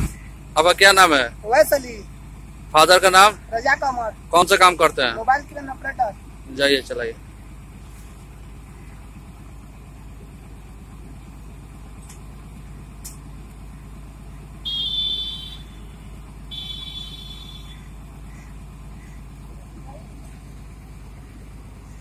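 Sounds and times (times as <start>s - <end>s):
diesel engine idling: 0.0s - 22.0s.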